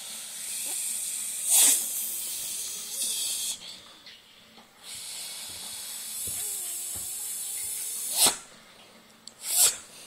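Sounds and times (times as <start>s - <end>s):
long hiss with bursts: 0.0s - 3.6s, 4.8s - 8.3s.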